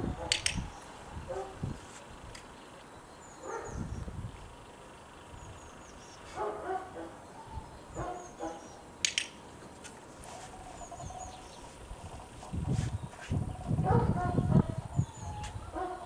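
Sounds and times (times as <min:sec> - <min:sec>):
training clicker click: 0:09.0 - 0:09.4.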